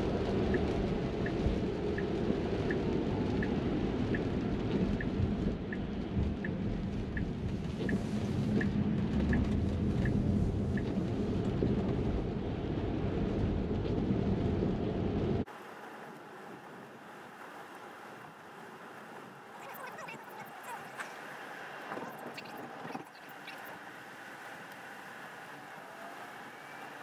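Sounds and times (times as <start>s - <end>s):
turn signal ticking: 0.0s - 11.6s
rain on glass roof: 0.0s - 27.0s
tyres rumbling on wet road: 0.0s - 27.0s.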